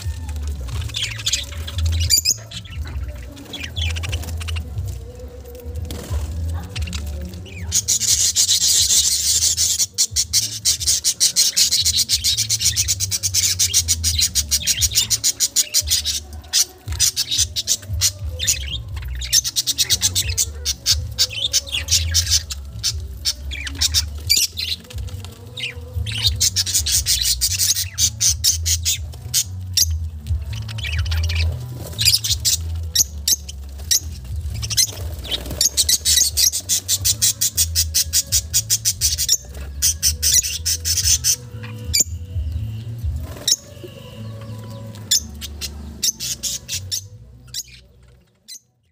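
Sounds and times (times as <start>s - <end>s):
budgerigars chattering and squawking: 0.0s - 5.3s, 6.0s - 48.7s.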